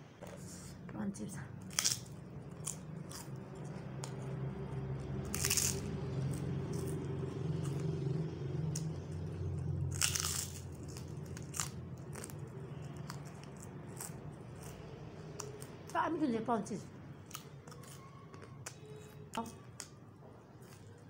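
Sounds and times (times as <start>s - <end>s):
low hum: 0.0s - 21.0s
crisp cracker crunching: 1.7s - 3.4s, 4.0s - 7.0s, 9.9s - 14.8s
chewing: 1.7s - 15.9s, 17.2s - 21.0s.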